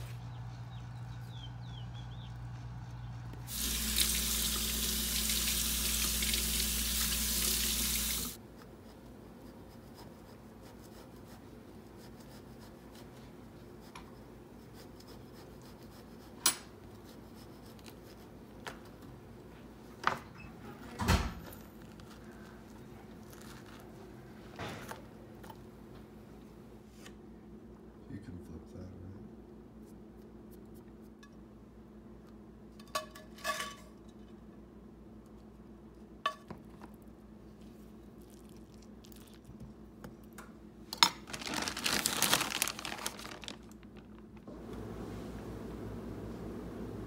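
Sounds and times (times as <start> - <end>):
faucet running into sink: 3.5 - 8.4.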